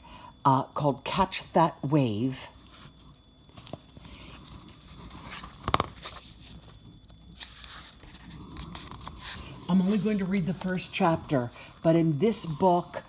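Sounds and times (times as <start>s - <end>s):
book pages rustling: 2.6s - 11.8s.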